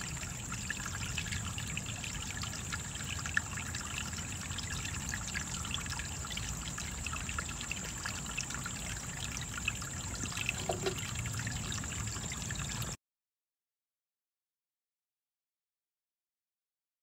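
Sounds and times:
trickling water: 0:00.0 - 0:13.0.

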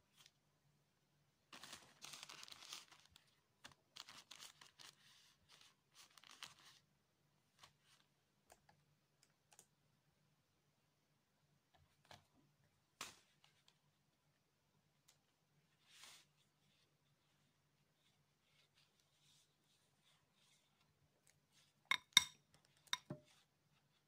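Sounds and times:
wrappers rustling and crinkling: 0:01.5 - 0:06.8.

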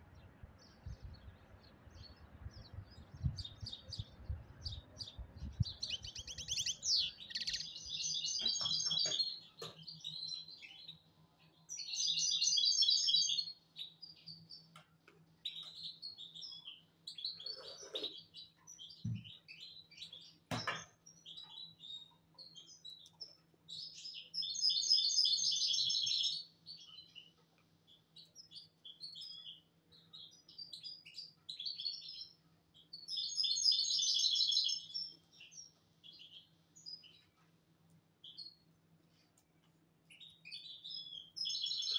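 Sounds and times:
goldfinch twittering song: 0:00.1 - 0:11.0, 0:11.6 - 0:14.7, 0:27.9 - 0:37.3, 0:40.1 - 0:41.9
single bird chirps: 0:05.5 - 0:09.1.

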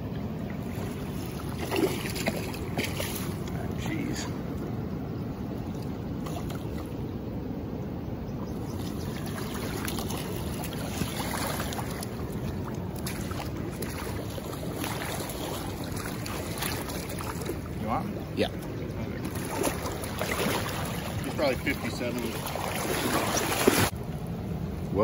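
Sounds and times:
river water rushing: 0:00.0 - 0:25.0
short splashes: 0:00.6 - 0:04.4, 0:08.7 - 0:24.0.

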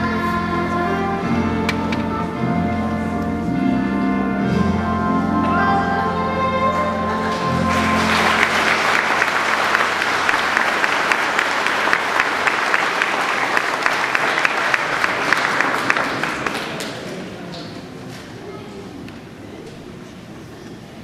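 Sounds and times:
held song chord: 0:00.0 - 0:11.3
audience clapping: 0:07.3 - 0:17.7.

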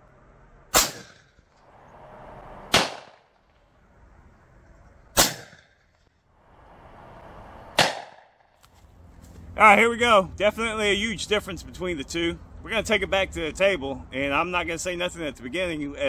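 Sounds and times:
gunshots with echo: 0:00.7 - 0:01.2, 0:02.7 - 0:03.3, 0:05.2 - 0:05.6, 0:07.8 - 0:08.3.

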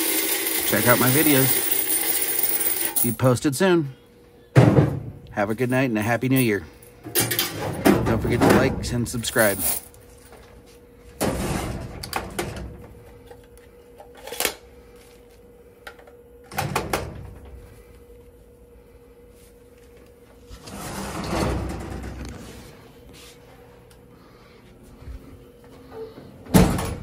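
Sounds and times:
steady hum: 0:00.0 - 0:27.0
vending machine clunks and rattles: 0:04.6 - 0:05.2, 0:07.0 - 0:09.2, 0:11.2 - 0:12.9, 0:16.5 - 0:17.6, 0:20.9 - 0:22.3, 0:26.4 - 0:27.0.

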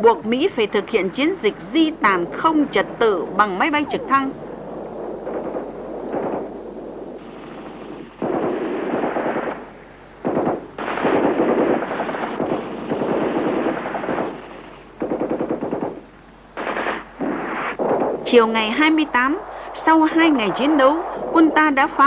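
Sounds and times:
automatic gunfire bursts: 0:07.3 - 0:18.2.

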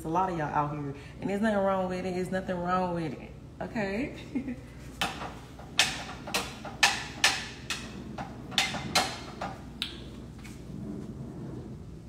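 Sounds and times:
utensil knocking on cookware: 0:05.0 - 0:09.6.

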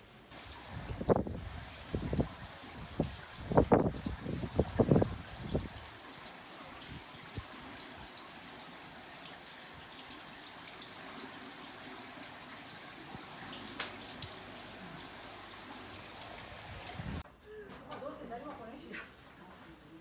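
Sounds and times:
water trickling: 0:00.0 - 0:17.2.

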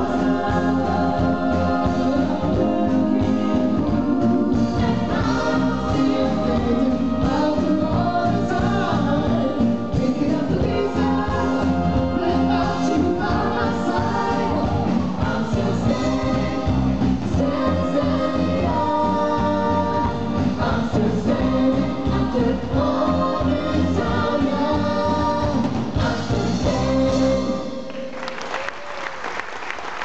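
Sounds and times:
live band playing: 0:00.0 - 0:27.9
person singing lead: 0:00.0 - 0:28.0
ensemble vocals: 0:00.0 - 0:28.2
audience applause: 0:27.9 - 0:30.0.

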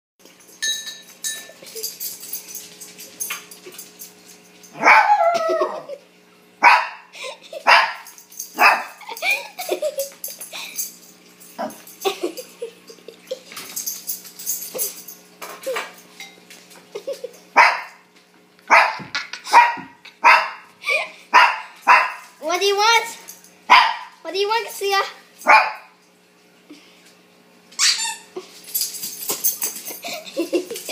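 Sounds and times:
small dog barking: 0:04.8 - 0:05.2, 0:06.6 - 0:09.0, 0:17.6 - 0:17.9, 0:18.7 - 0:20.7, 0:21.3 - 0:22.2, 0:23.7 - 0:24.1, 0:25.5 - 0:25.9.

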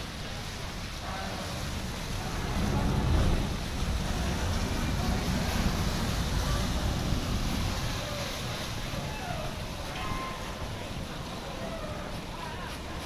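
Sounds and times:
ferry engines rumbling: 0:00.0 - 0:13.0
water washing along hull: 0:00.0 - 0:13.0
wind on microphone: 0:01.4 - 0:13.0.

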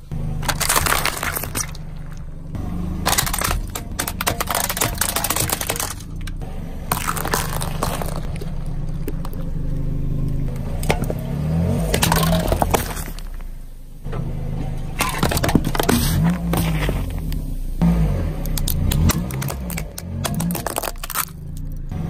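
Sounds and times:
tyre crushing small objects: 0:00.0 - 0:13.6, 0:15.0 - 0:17.4, 0:18.4 - 0:22.0
car engine humming: 0:00.0 - 0:22.0
cans crumpling under wheel: 0:00.4 - 0:02.2, 0:03.0 - 0:09.5, 0:12.0 - 0:13.4, 0:15.0 - 0:17.4, 0:18.5 - 0:21.8.

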